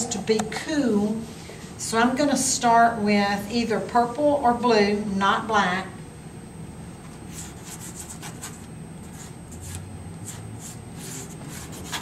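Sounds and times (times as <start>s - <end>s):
pastel stick scratching on paper: 7.3s - 12.0s.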